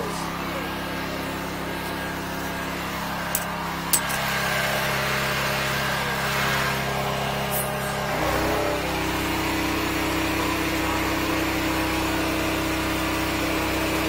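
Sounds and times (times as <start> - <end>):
engine running steadily: 0.0 - 14.0.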